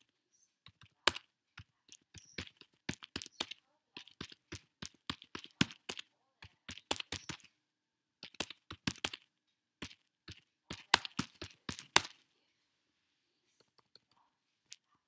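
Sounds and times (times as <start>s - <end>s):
computer keyboard typing: 0.0s - 7.5s, 8.2s - 12.2s.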